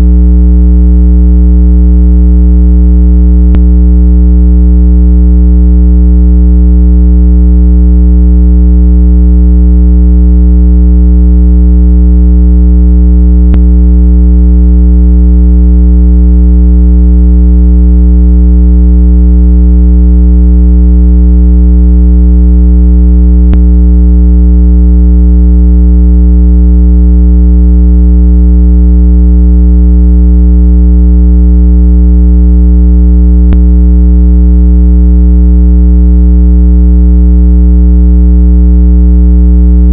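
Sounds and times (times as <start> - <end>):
low electronic tone: 0.0 - 0.3, 3.4 - 3.8, 13.4 - 13.8, 23.4 - 23.8, 33.5 - 33.7.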